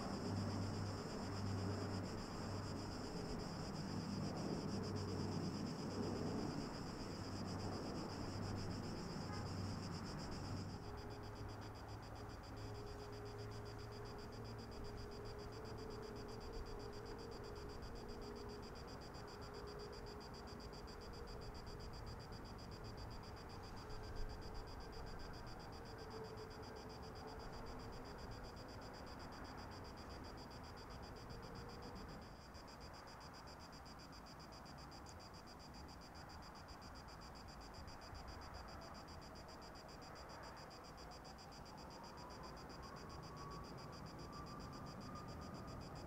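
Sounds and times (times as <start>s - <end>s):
distant aircraft drone: 0.0s - 26.7s.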